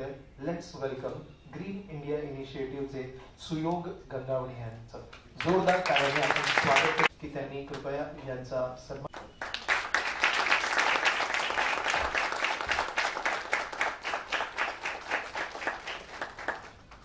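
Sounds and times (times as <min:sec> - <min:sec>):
audience applauding: 0:05.4 - 0:07.1, 0:09.1 - 0:17.0.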